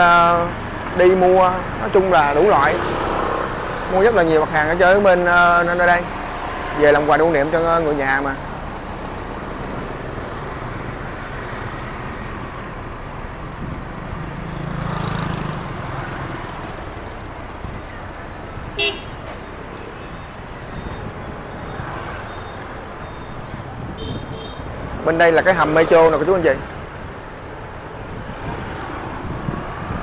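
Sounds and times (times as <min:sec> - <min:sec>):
city street traffic: 0:00.0 - 0:30.0
vehicle passing close: 0:13.9 - 0:16.6.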